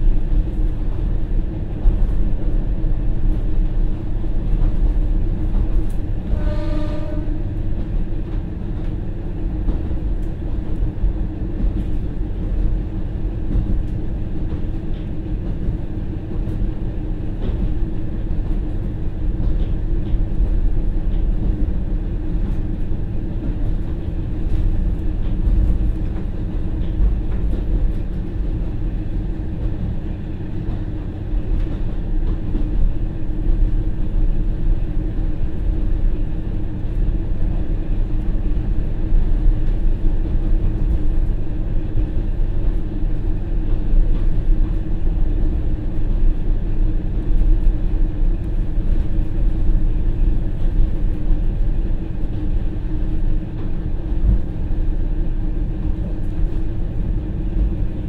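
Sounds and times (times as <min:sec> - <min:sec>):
train horn blast: 0:06.2 - 0:07.7.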